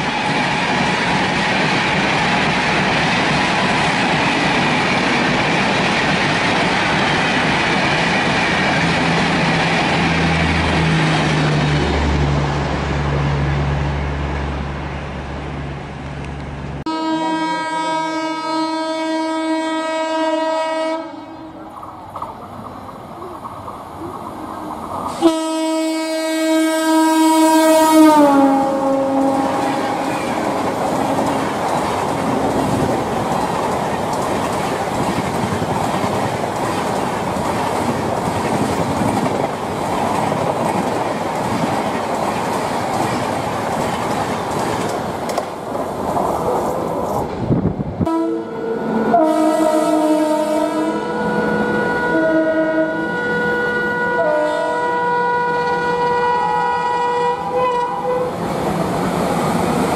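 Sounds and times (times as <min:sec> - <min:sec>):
train coaches rumbling past: 0:00.0 - 0:59.9
locomotive horn: 0:16.9 - 0:21.6, 0:25.1 - 0:31.5, 0:48.0 - 0:58.4.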